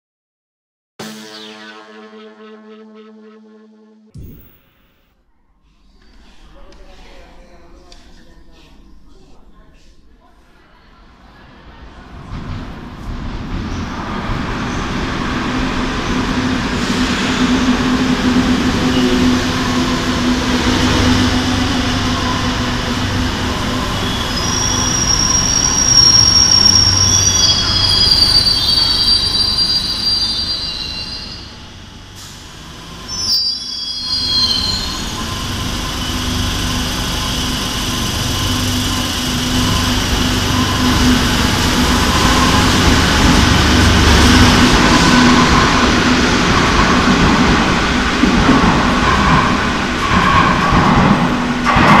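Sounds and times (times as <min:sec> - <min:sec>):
wheel and brake squeal: 0:24.0 - 0:31.6, 0:33.1 - 0:36.5
train wheel rumble and motor hum: 0:34.4 - 0:52.0.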